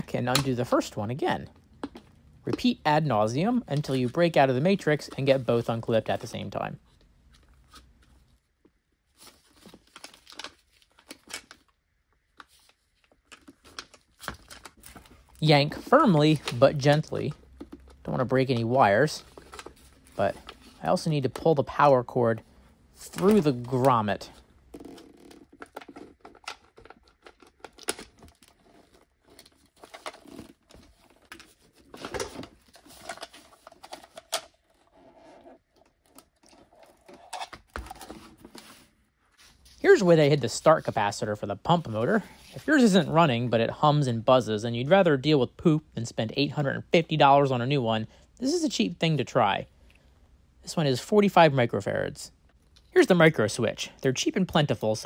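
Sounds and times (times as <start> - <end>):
plastic parts clicking and scraping: 23.0 - 38.8.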